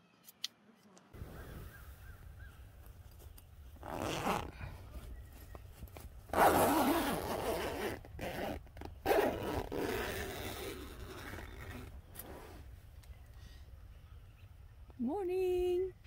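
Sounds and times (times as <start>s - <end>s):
tent zipper unzipping: 3.8s - 4.6s, 6.3s - 12.7s.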